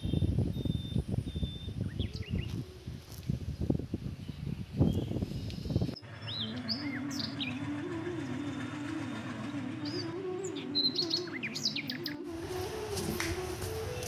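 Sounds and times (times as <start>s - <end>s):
small birds chirping: 0.0s - 7.8s, 9.8s - 12.2s
passing train rumble: 5.8s - 14.0s.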